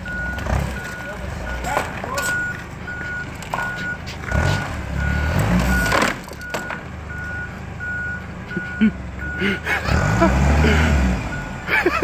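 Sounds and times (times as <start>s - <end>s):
reversing alarm beeping: 0.0s - 9.6s
forklift engine running: 0.0s - 12.0s.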